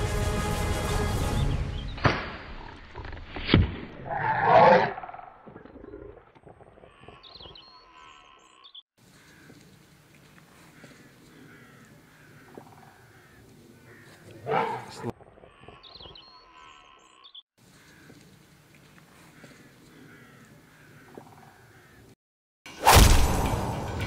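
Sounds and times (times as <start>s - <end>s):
music: 0.0s - 2.0s, 23.3s - 24.0s
loud animal roar: 4.0s - 6.3s, 14.4s - 15.1s.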